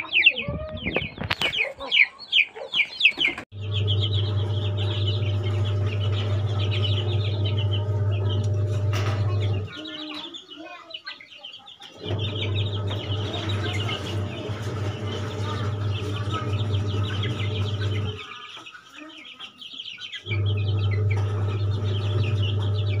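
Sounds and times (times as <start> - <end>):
chicks peeping: 0.0 - 23.0
steady low hum: 3.6 - 9.7, 12.0 - 18.2.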